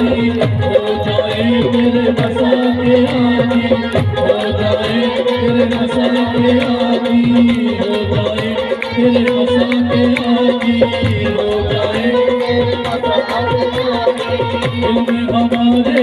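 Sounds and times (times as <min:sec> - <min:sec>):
man singing: 0:00.0 - 0:16.0
hand clapping: 0:08.4 - 0:11.3, 0:12.3 - 0:16.0.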